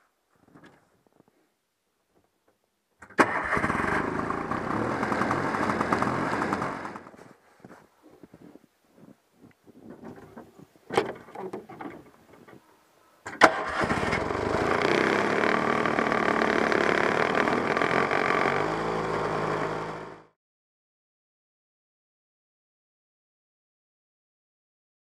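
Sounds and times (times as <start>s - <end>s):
two-stroke engine idling: 4.1s - 7.0s, 14.1s - 20.2s
rustling: 5.2s - 13.2s.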